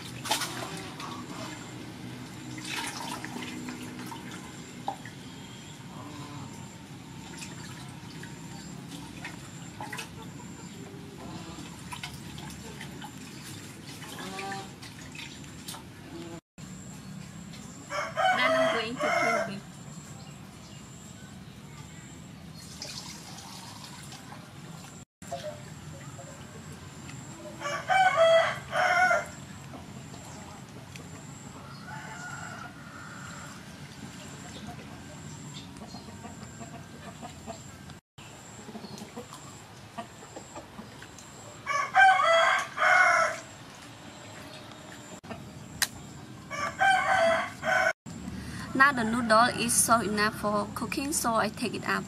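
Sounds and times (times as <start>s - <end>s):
water sloshing and dripping: 0.0s - 16.4s, 22.6s - 27.4s, 32.2s - 38.0s, 38.8s - 41.6s, 42.2s - 45.4s
rooster crowing: 17.9s - 19.6s, 27.5s - 29.4s, 31.6s - 33.7s, 41.6s - 43.5s, 46.5s - 49.7s.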